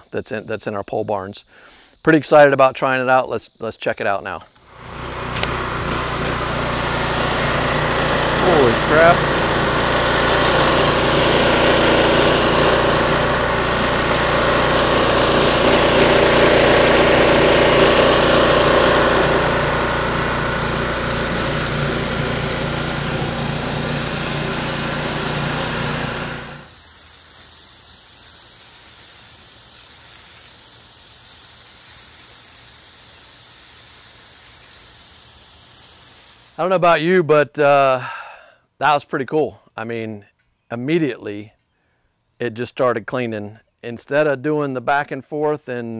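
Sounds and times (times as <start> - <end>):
pressure washer engine running: 4.6 - 36.6
water jetting onto concrete: 4.6 - 36.7.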